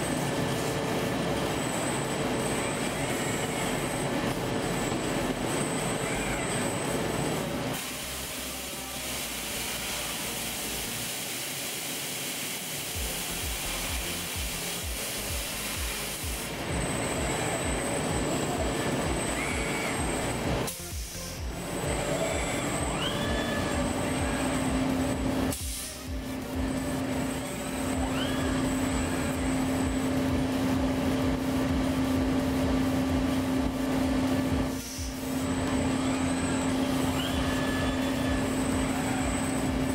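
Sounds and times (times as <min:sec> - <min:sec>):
machinery hum: 0:00.0 - 0:39.9
short rising whine: 0:12.8 - 0:39.9
compressed air hissing: 0:25.5 - 0:26.2.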